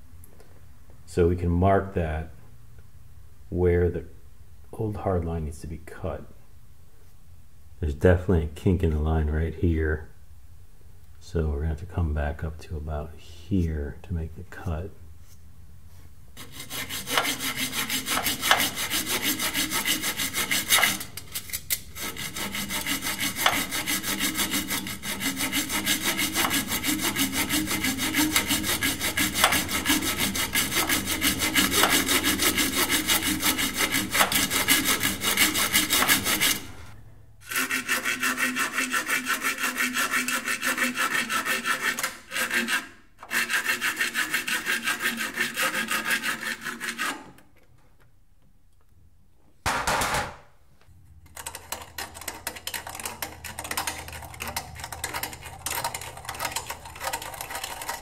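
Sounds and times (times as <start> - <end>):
hacksaw cutting metal pipe: 16.4 - 47.4, 51.4 - 58.0.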